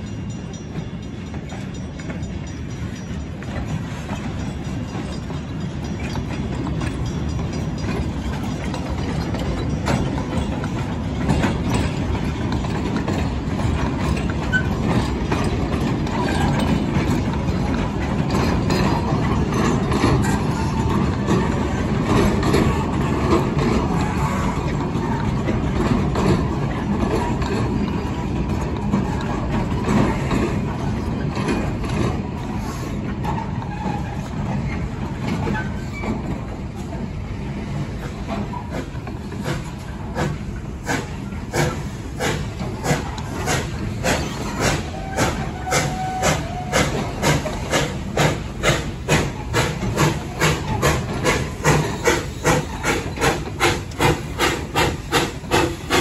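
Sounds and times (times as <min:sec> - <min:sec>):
steam locomotive chuffing: 0:00.0 - 0:56.0
wheels rumbling on rail: 0:00.0 - 0:56.0.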